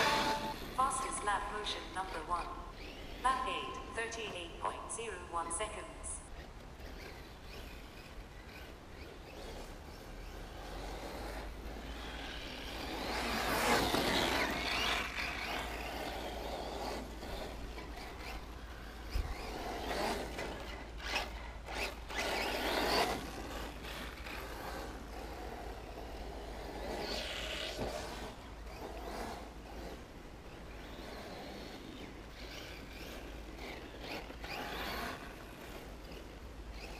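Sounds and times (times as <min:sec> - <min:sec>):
radio-controlled car motor whine: 0:00.0 - 0:03.9, 0:06.2 - 0:36.9
tyre noise on dirt: 0:09.4 - 0:29.8.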